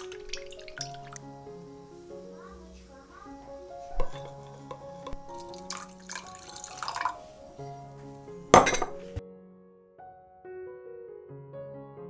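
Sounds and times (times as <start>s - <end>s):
liquid pouring into glass mug: 0.0s - 1.3s, 4.0s - 7.9s
piano music: 0.0s - 12.0s
glass and metal spoon clatter: 4.0s - 7.1s, 8.6s - 9.1s.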